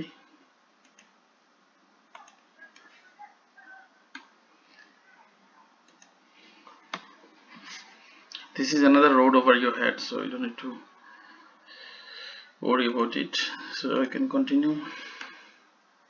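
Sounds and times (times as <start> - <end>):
computer mouse clicking: 0.8 - 1.2, 2.1 - 2.9, 4.1 - 4.3, 5.8 - 7.1.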